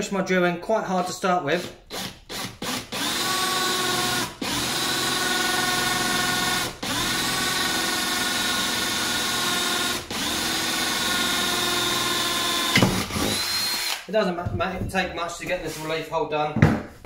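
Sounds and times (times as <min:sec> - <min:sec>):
cordless drill boring metal: 0:01.6 - 0:14.1.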